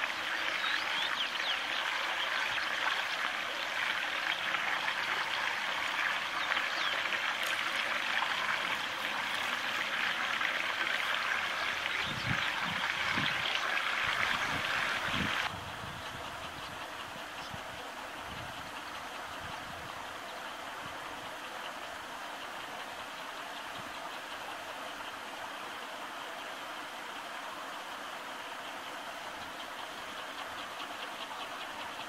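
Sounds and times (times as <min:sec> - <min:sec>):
running water: 0:00.0 - 0:15.5.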